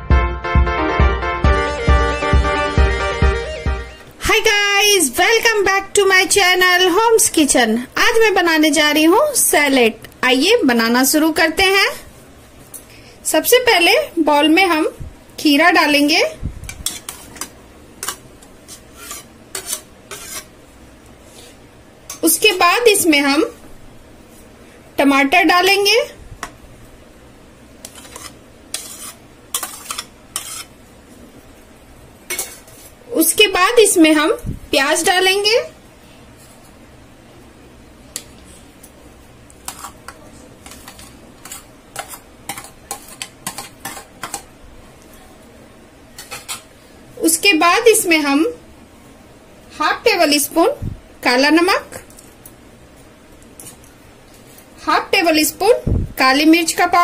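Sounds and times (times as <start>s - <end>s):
spoon scraping metal bowl: 16.7s - 20.5s, 27.8s - 30.7s, 32.3s - 32.9s, 39.6s - 44.5s.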